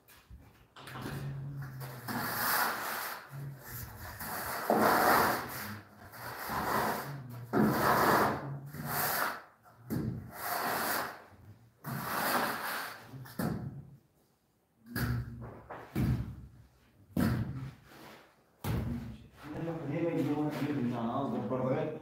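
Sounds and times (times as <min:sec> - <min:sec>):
straightedge scraping mortar: 0:01.6 - 0:09.5, 0:10.2 - 0:13.4.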